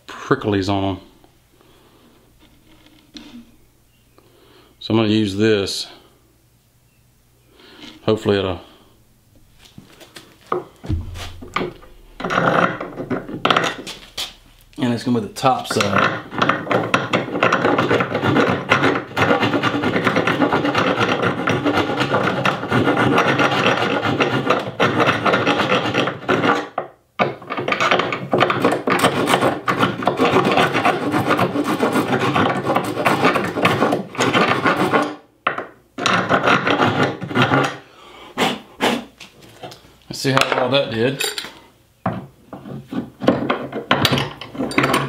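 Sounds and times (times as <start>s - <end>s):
hand file rasping wood: 15.8s - 26.7s, 28.4s - 35.2s, 36.1s - 37.8s.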